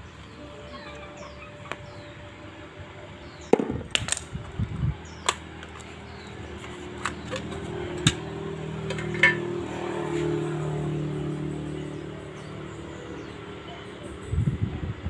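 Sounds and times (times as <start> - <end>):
metal cover clicks and knocks: 6.6 - 9.7.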